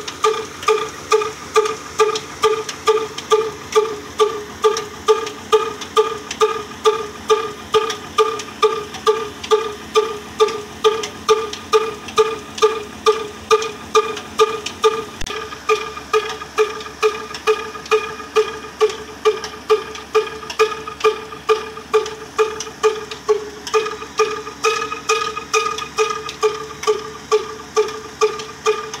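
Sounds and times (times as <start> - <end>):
stationary diesel engine running: 0.0 - 29.0.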